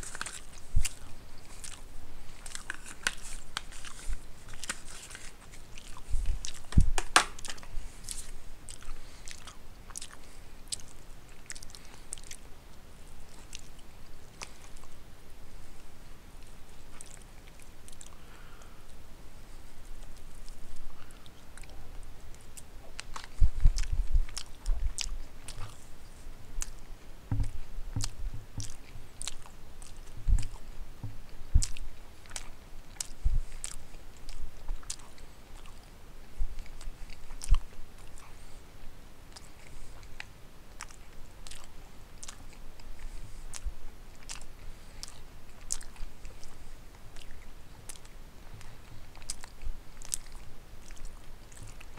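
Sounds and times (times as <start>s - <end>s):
man chewing food: 0.0s - 51.9s
wet mouth clicks and smacks: 5.8s - 12.4s, 22.6s - 25.8s, 27.4s - 30.6s, 31.6s - 35.0s, 39.3s - 42.4s, 43.5s - 46.6s
low thumps: 27.3s - 29.0s.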